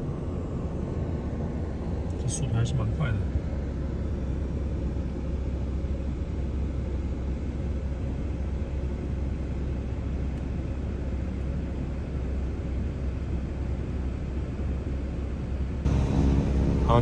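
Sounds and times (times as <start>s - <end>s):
car idling low rumble: 0.0s - 17.0s.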